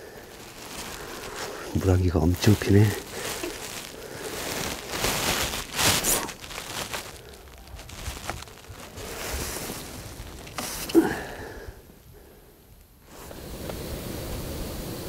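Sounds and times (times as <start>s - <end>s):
jacket rustling and handling: 0.0s - 11.5s.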